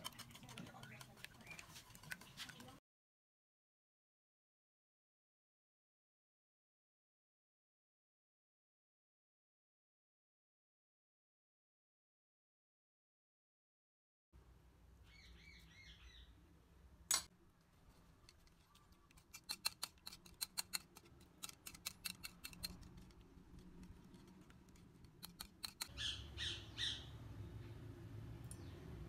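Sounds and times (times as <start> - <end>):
whisk clicking against bowl: 0.0 - 2.8, 19.1 - 25.9
bird chirping: 15.0 - 16.4, 25.6 - 27.8.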